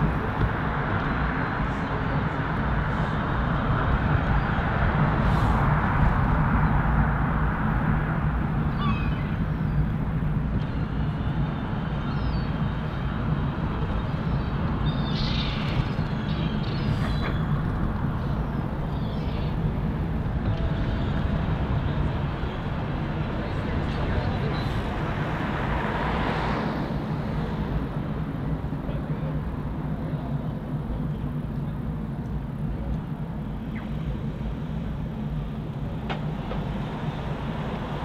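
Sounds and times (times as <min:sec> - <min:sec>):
city traffic rumble: 0:00.0 - 0:38.0
high bird calls: 0:08.6 - 0:09.9, 0:12.0 - 0:13.2, 0:13.9 - 0:19.8.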